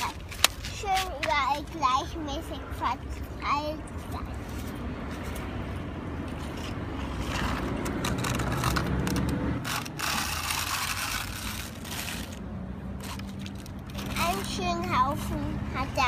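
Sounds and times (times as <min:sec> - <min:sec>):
toy bucket scraping gravel on concrete: 0:06.4 - 0:12.4, 0:13.0 - 0:15.4.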